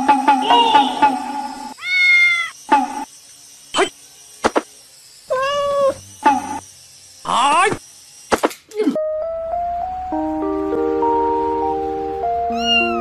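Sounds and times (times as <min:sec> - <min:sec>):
cat meowing: 0:01.8 - 0:02.6, 0:05.3 - 0:06.0, 0:12.5 - 0:13.0.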